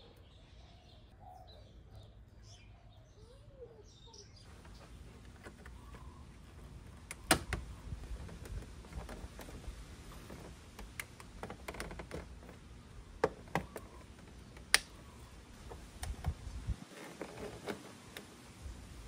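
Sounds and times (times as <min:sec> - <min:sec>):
faint plastic rubbing: 0:04.5 - 0:18.4
plastic clicks and snaps: 0:10.4 - 0:12.6, 0:13.2 - 0:15.0.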